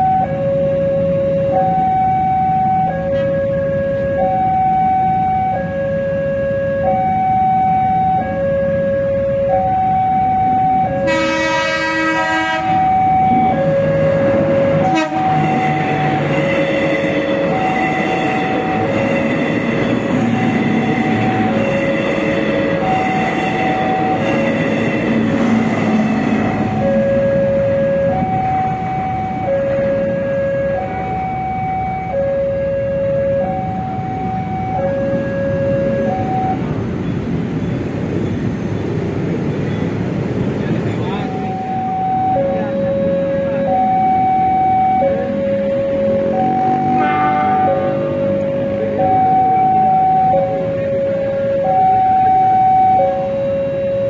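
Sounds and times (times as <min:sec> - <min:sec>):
two-tone level-crossing alarm: 0:00.0 - 0:36.8, 0:41.0 - 0:54.0
street noise: 0:00.0 - 0:54.0
train wheel and engine noise: 0:00.0 - 0:54.0
train horn chord: 0:11.0 - 0:12.9, 0:14.1 - 0:27.6, 0:46.7 - 0:49.0.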